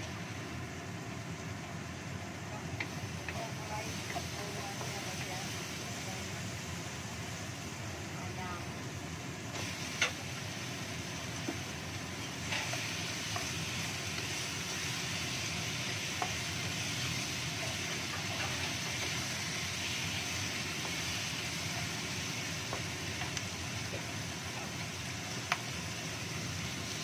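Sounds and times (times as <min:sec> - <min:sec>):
chicken sizzling in hot oil: 0:00.0 - 0:27.0
wooden spatula knocking wok: 0:02.6 - 0:05.4, 0:11.2 - 0:25.9.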